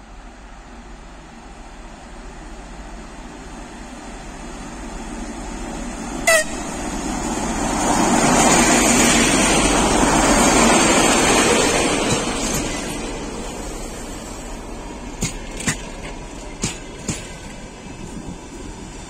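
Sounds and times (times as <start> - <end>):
train wheels rolling: 3.5 - 19.0
train horn toot: 6.2 - 6.7.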